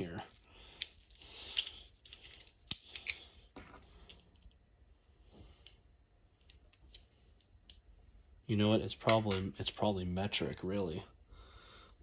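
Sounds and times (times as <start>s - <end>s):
metal allen keys clinking: 0.8s - 3.4s.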